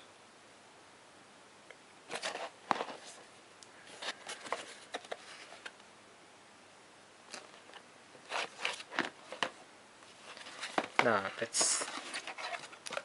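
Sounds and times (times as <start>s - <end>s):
cardboard box handled: 3.9s - 5.7s, 10.2s - 13.0s.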